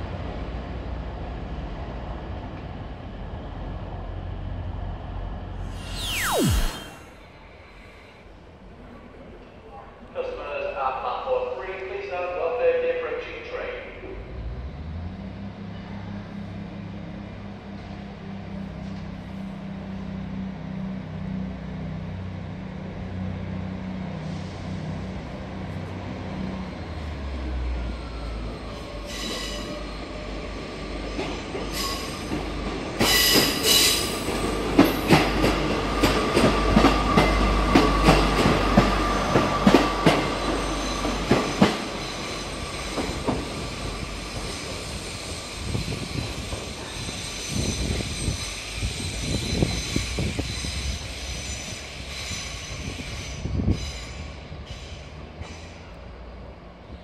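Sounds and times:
low hum: 5.6 - 8.2
wheel squeal: 44.2 - 55.8.

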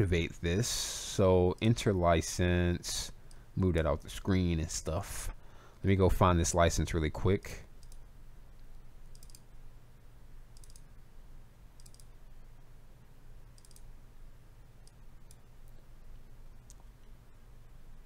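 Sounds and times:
faint low hum: 0.0 - 18.0
computer mouse clicking: 7.8 - 8.0, 8.6 - 9.4, 10.6 - 10.9, 11.8 - 12.1, 13.6 - 13.9.

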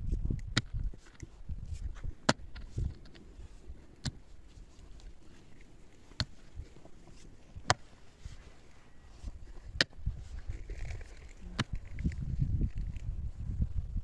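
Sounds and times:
soil and stones scraping: 0.0 - 13.8
pickaxe striking stony earth: 0.3 - 3.2, 3.8 - 4.4, 6.0 - 8.1, 9.6 - 12.0.

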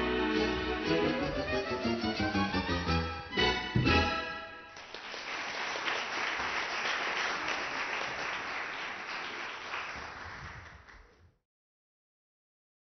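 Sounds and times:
audience applauding: 4.7 - 11.3.

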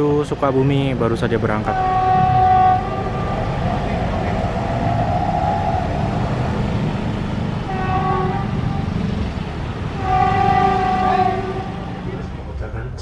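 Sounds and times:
engines rumbling: 0.0 - 13.0
vehicle horn: 1.7 - 3.5, 7.7 - 8.9, 10.0 - 12.0.

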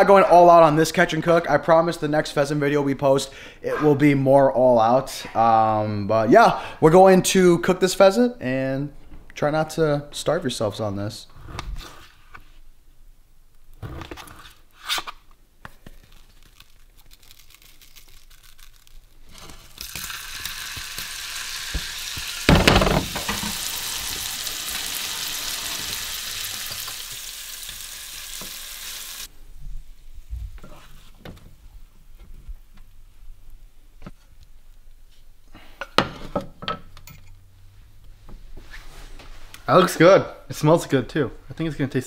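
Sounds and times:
meat sizzling in butter: 19.2 - 29.3
wooden spoon knocking in pan: 22.5 - 23.6.

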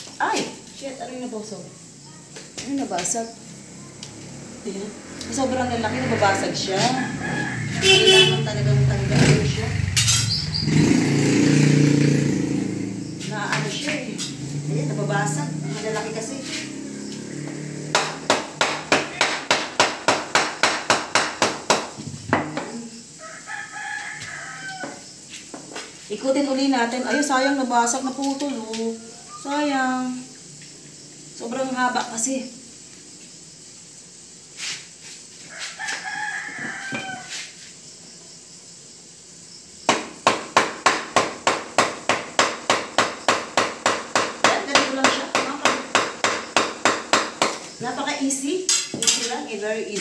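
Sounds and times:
rooster crowing: 5.4 - 8.8, 14.6 - 18.3, 23.1 - 25.3, 28.8 - 29.6, 35.4 - 37.6
wooden mallet beating banana stalk: 17.9 - 22.8, 39.9 - 47.7
wooden pounder knocking: 17.9 - 22.8.

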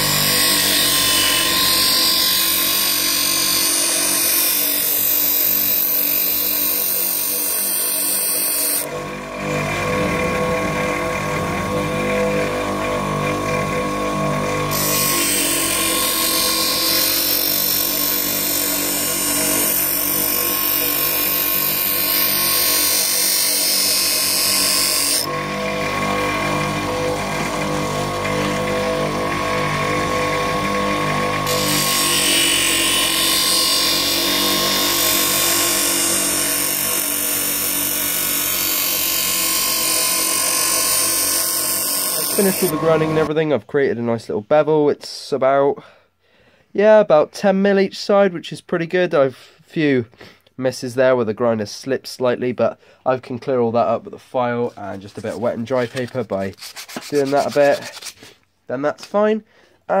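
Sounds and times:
bench grinder motor whining: 0.0 - 43.3
steel grinding against wheel: 14.4 - 28.6.

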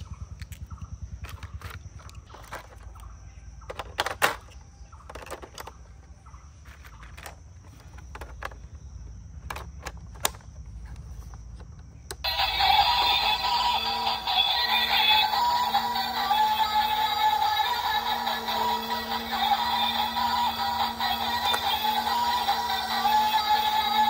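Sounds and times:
plastic clicks and knocks: 6.7 - 8.7, 9.4 - 10.6
toy playing electronic music: 12.2 - 24.0.

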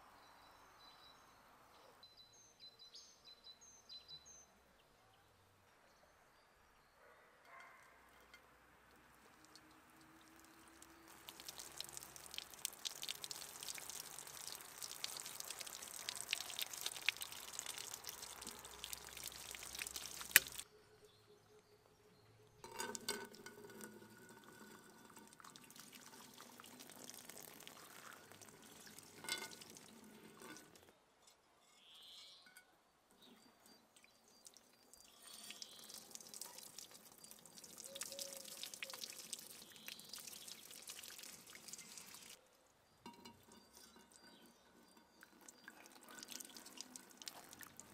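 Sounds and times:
hot water splashing on pot: 9.1 - 20.6, 22.6 - 30.9, 34.5 - 42.4, 45.2 - 47.9.

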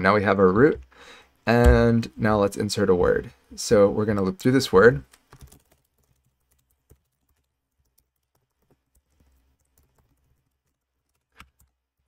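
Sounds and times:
faint computer keyboard typing: 5.0 - 12.0.

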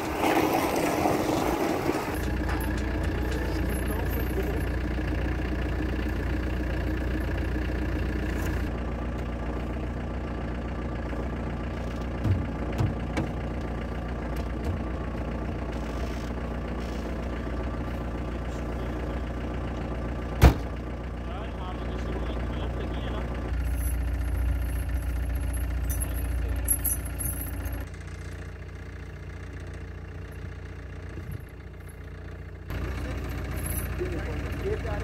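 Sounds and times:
car engine idling: 0.0 - 35.0.

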